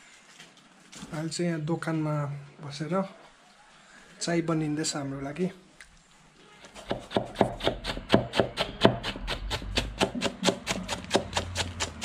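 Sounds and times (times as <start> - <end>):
knife chopping on wooden board: 6.6 - 12.0.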